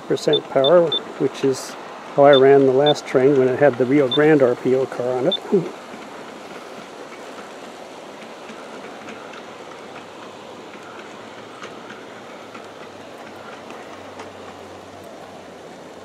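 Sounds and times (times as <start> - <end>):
model train wheels rolling on rails: 0.0 - 16.0
faint clicks: 8.2 - 15.2.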